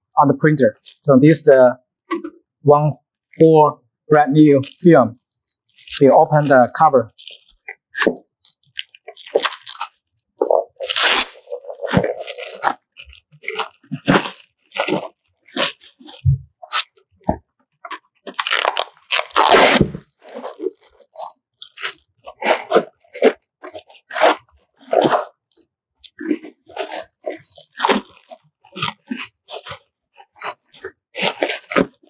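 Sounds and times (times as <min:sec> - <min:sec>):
plastic wrap crinkling: 0:07.2 - 0:16.3, 0:17.9 - 0:25.2, 0:26.3 - 0:32.0.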